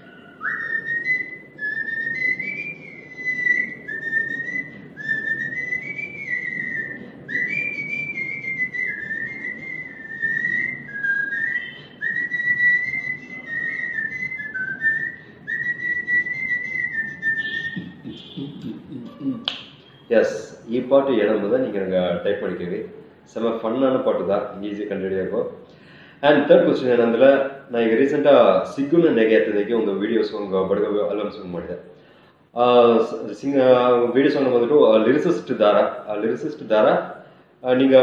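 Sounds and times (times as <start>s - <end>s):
person whistling a tune: 0.0s - 20.1s.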